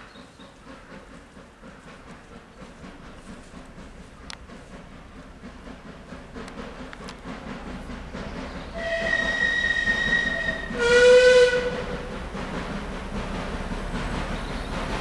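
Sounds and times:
diesel locomotive rumble: 0.0 - 15.0
train warning horn: 8.8 - 12.1.

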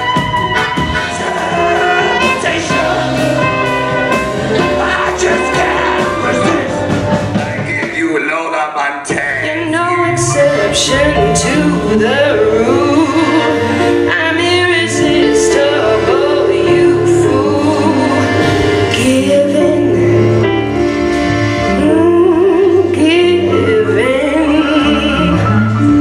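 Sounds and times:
instrumental accompaniment: 0.0 - 8.4, 9.1 - 26.0
woman singing with vibrato: 9.4 - 20.8, 21.7 - 26.0.

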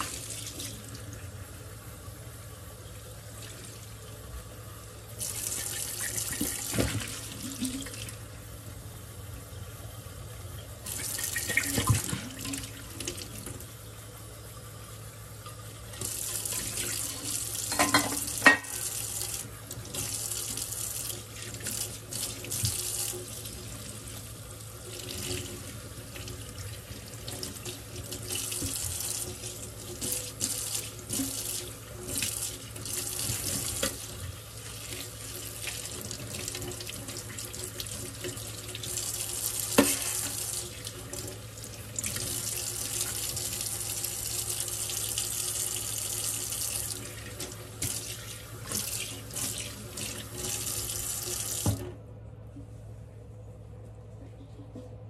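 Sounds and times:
tap running into sink: 11.0 - 13.6, 51.2 - 51.9.

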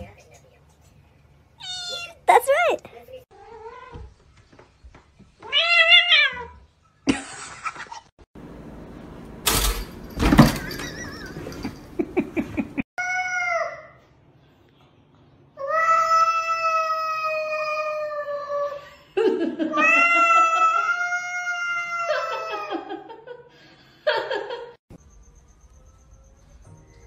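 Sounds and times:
cat yowling: 5.5 - 6.6, 19.8 - 22.7.

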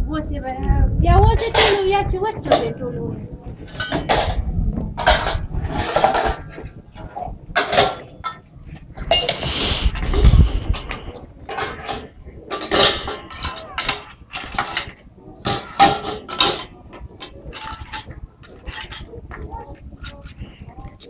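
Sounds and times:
low rumble: 0.0 - 14.3
metal pots clinking: 1.4 - 2.8, 3.7 - 4.4, 5.0 - 9.5, 10.7 - 20.4.

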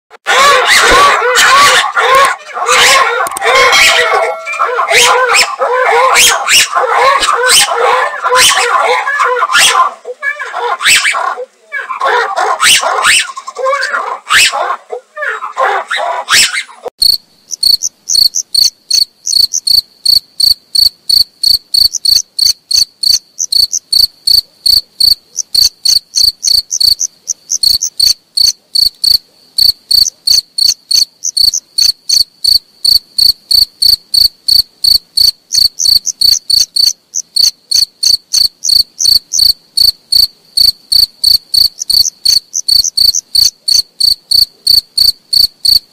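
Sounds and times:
lemurs calling loudly: 0.2 - 16.9
cricket chirping: 17.0 - 45.9.

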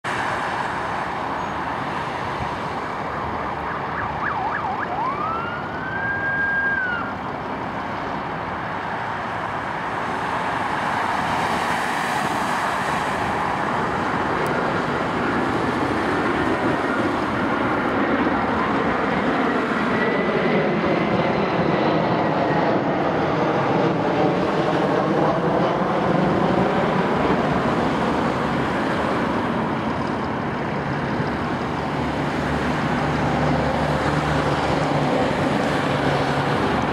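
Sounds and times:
road traffic noise: 0.0 - 36.9
police car siren: 2.7 - 7.5, 13.5 - 17.4.

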